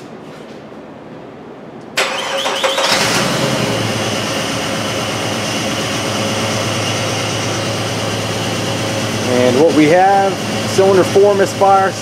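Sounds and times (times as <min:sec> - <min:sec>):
starter cranking engine: 0:02.0 - 0:03.6
misfiring engine idling: 0:02.1 - 0:12.0.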